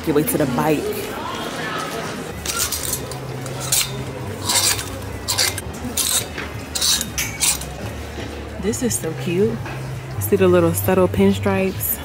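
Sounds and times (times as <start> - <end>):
clothes hangers scraping on metal rail: 2.4 - 7.8.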